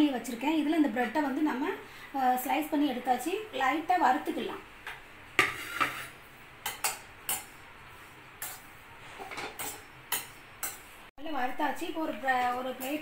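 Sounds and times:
metal spatula clinking on pan: 9.3s - 10.8s.

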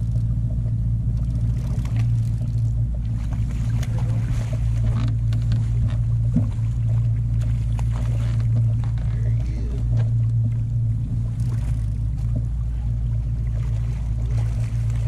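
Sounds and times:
fishing reel clicks and rustles: 0.0s - 0.4s, 1.0s - 6.1s, 11.2s - 12.5s
boat motor humming: 0.0s - 15.0s.

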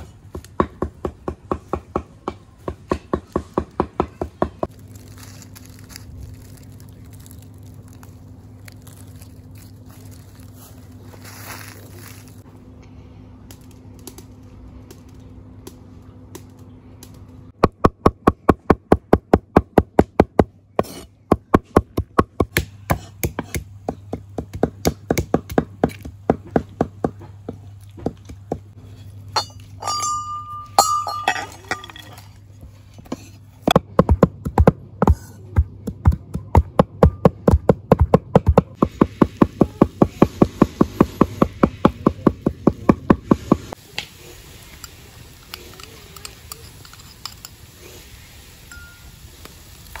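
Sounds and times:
low hum: 4.4s - 25.0s, 25.6s - 50.0s
cleaver chopping herbs on wood: 17.6s - 28.8s, 33.6s - 43.8s
high clink: 29.4s - 32.3s.

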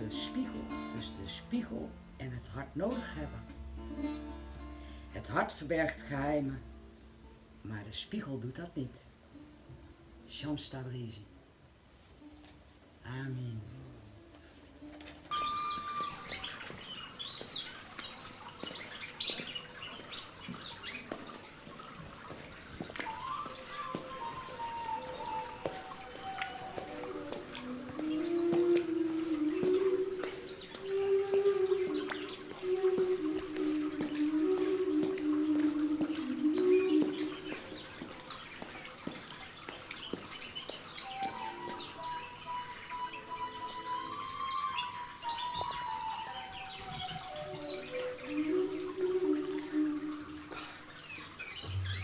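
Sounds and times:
long held notes: 13.7s - 17.6s, 22.9s - 38.3s, 41.0s - 51.0s
small birds chirping: 15.3s - 52.0s
water drips and clicks: 15.3s - 52.0s.

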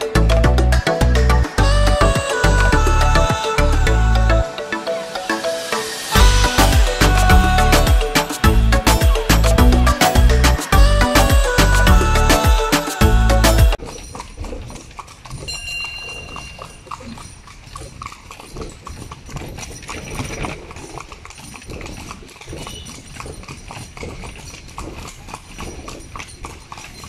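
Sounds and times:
horse hooves on paved road: 6.2s - 27.0s.

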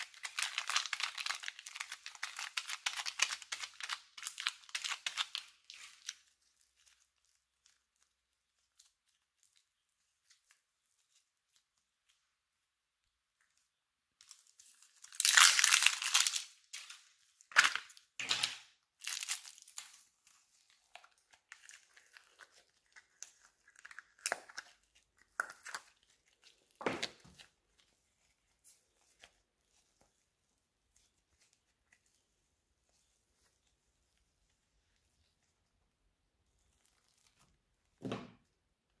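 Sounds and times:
clay and slime crackling: 0.0s - 39.0s.

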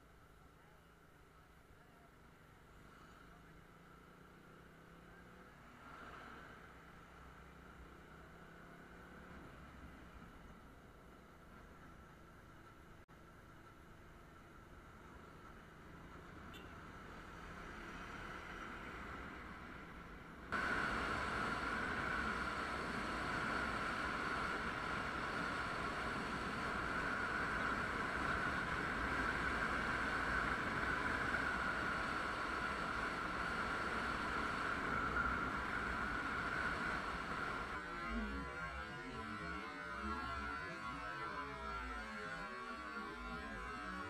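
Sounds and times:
motorcycle road noise: 0.6s - 44.0s.

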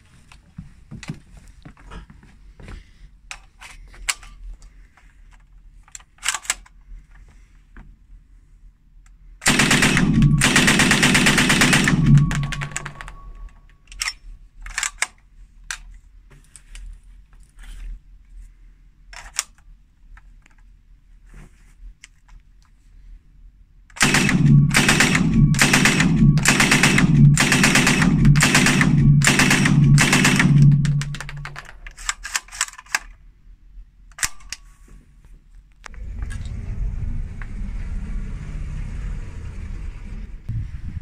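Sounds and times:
gun handling clicks: 5.8s - 6.8s, 11.9s - 15.9s, 19.2s - 19.7s, 23.9s - 33.2s, 34.1s - 34.6s
submachine gun automatic burst: 9.4s - 13.4s, 24.0s - 31.7s.

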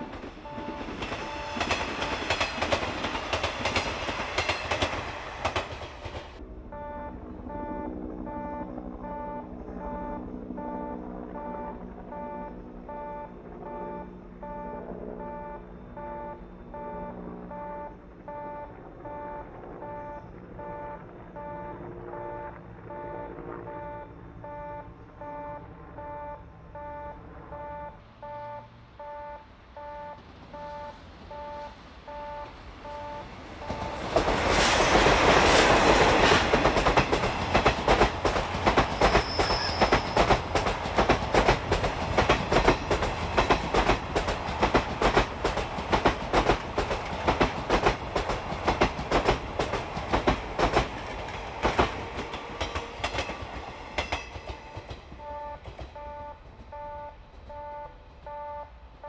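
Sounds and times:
level-crossing alarm dinging: 0.0s - 2.7s, 6.7s - 34.2s, 54.0s - 58.8s
train rushing past: 0.0s - 25.4s, 26.0s - 59.0s
wheels clicking over rail joints: 33.5s - 57.6s
wheel squeal: 38.9s - 40.4s.

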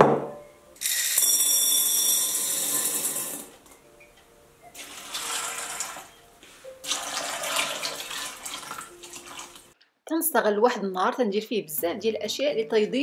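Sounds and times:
chickpeas rattling into glass bowl: 0.8s - 3.5s
water pouring: 4.7s - 6.2s, 6.8s - 9.8s.

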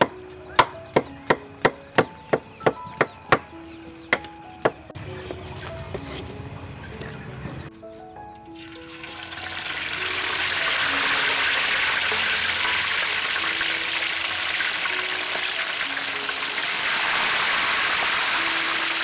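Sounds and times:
fish sizzling in hot oil: 8.5s - 19.0s.

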